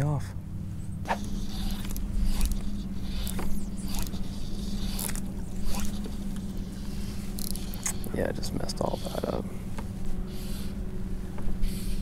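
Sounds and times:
fly line swishing: 0:01.0 - 0:08.2.

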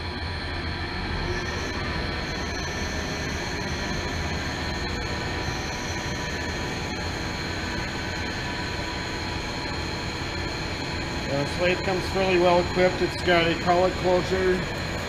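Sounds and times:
high whining tones: 0:00.0 - 0:15.0
lathe mechanical whir: 0:00.0 - 0:15.0.

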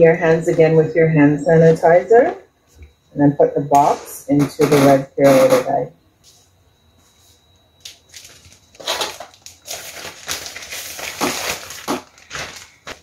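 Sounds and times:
plastic bag crinkling: 0:07.8 - 0:13.0.

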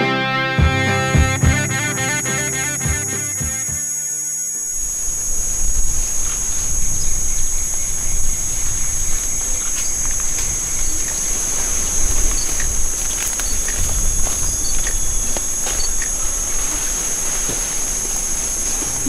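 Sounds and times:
insects trilling: 0:00.8 - 0:19.0
snaps and rustles in undergrowth: 0:05.9 - 0:19.0.

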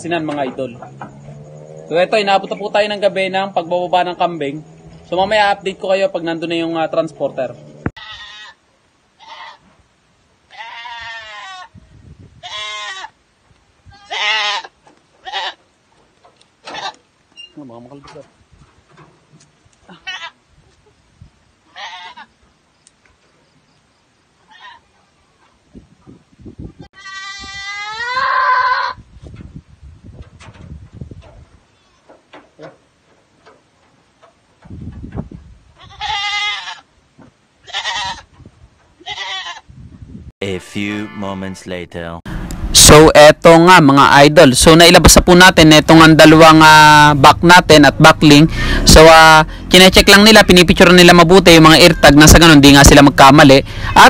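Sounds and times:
goats bleating: 0:08.0 - 0:08.6, 0:09.2 - 0:09.7, 0:10.5 - 0:11.7, 0:12.4 - 0:13.2, 0:13.9 - 0:15.6, 0:19.9 - 0:20.4, 0:21.7 - 0:22.3, 0:26.9 - 0:29.0, 0:35.8 - 0:36.9, 0:37.6 - 0:38.3, 0:39.0 - 0:39.7.

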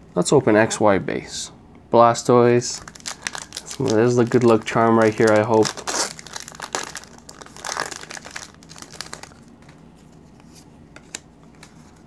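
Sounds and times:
foil wrapper tearing and crinkling: 0:02.8 - 0:09.5.

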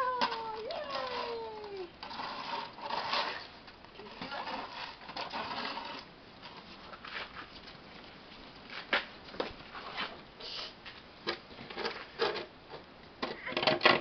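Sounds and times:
plastic shovel scraping on ice: 0:00.2 - 0:07.5.

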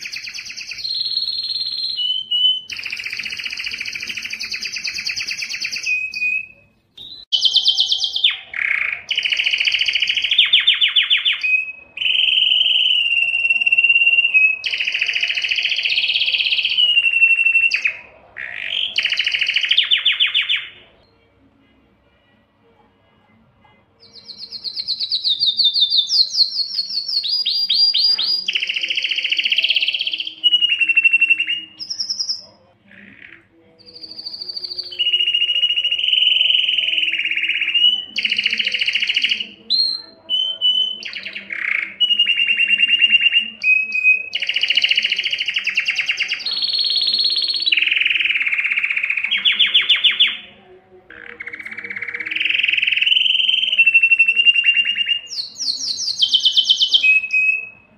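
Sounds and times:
canary singing trills: 0:00.0 - 0:57.9.

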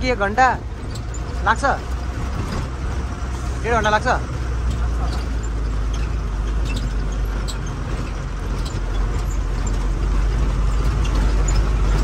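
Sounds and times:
truck engine and road rumble: 0:00.0 - 0:12.0
light clicks and rattles: 0:03.8 - 0:12.0.

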